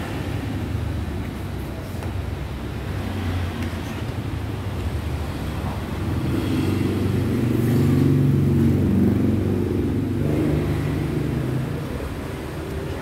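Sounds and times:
vehicle engine passing by: 0:05.2 - 0:12.7.

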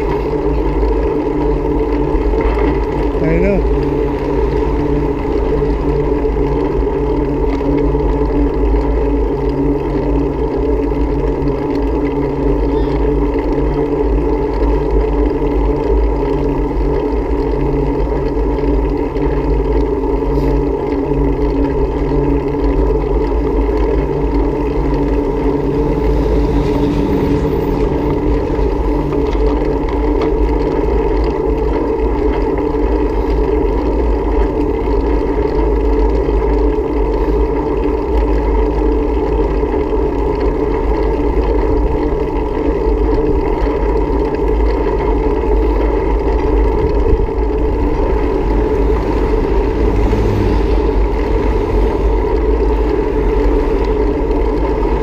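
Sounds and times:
constant low hum: 0:00.0 - 0:55.0
wind buffeting microphone: 0:22.6 - 0:35.5, 0:39.8 - 0:55.0.

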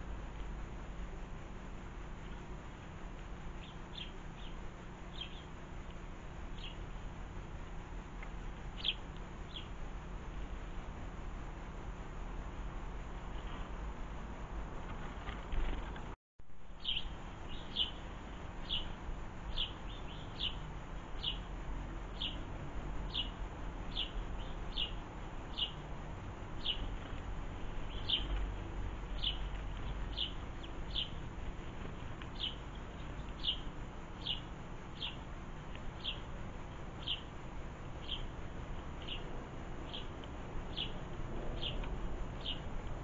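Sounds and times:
sparrow chirping: 0:03.6 - 0:05.6, 0:06.5 - 0:06.9, 0:08.7 - 0:09.8, 0:16.8 - 0:21.5, 0:22.1 - 0:22.4, 0:23.1 - 0:25.8, 0:26.6 - 0:28.4, 0:29.0 - 0:31.3, 0:32.2 - 0:36.3, 0:37.0 - 0:38.4, 0:39.0 - 0:42.6.

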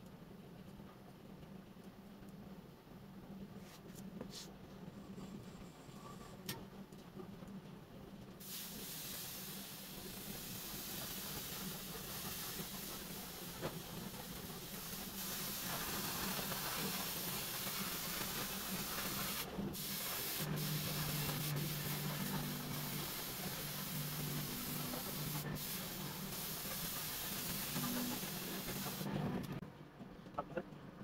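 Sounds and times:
air spray gun hissing: 0:08.4 - 0:29.1.

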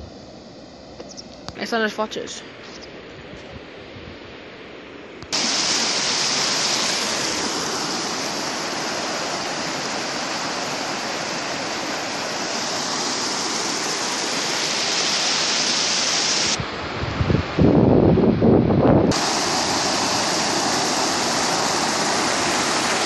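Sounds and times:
river water rushing over weir: 0:05.3 - 0:17.0, 0:19.1 - 0:23.0.

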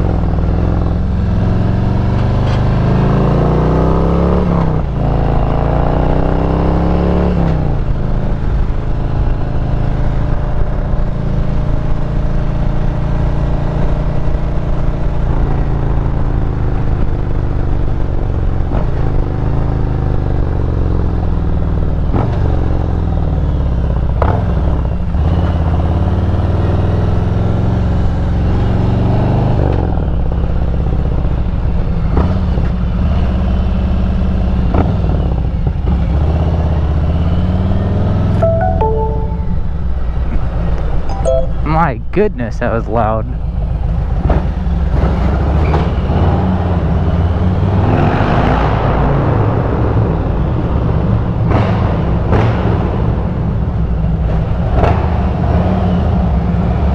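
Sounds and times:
motorcycle engine accelerating: 0:00.0 - 0:23.0.

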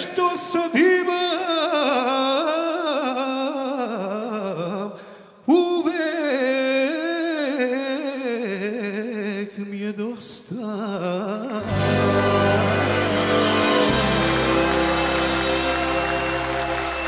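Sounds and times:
man singing a slow ballad: 0:00.0 - 0:12.6
singer taking a breath: 0:05.0 - 0:05.4.

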